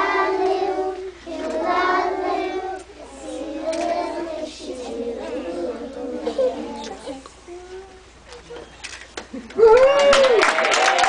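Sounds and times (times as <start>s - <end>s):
young children singing: 0.0s - 8.6s.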